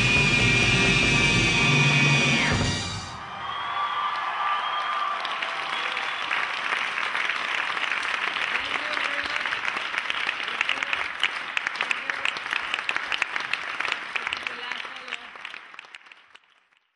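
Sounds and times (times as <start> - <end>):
audience applauding: 3.0 - 16.9.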